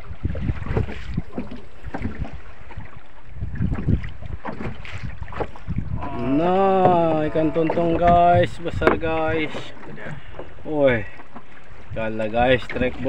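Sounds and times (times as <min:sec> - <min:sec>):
water slapping against boat hull: 0:00.0 - 0:13.0
wind buffeting microphone: 0:00.0 - 0:13.0.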